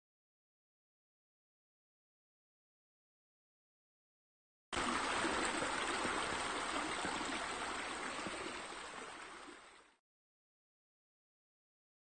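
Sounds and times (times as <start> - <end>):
running water trickle: 4.8 - 10.0.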